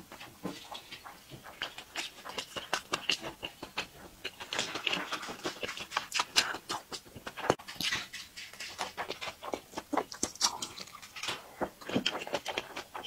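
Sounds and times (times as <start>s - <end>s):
chewing with mouth smacks: 0.2s - 13.0s.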